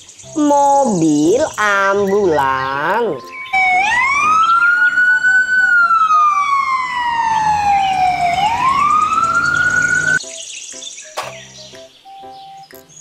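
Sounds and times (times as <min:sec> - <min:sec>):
ambulance siren wailing: 0:03.3 - 0:10.2.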